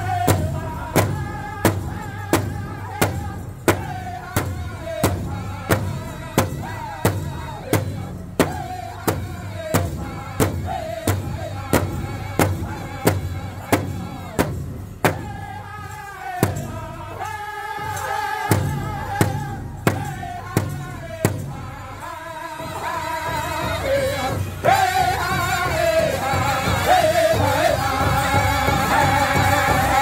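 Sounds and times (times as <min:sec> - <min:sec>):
large drum beating: 0:00.0 - 0:17.2, 0:17.8 - 0:21.8.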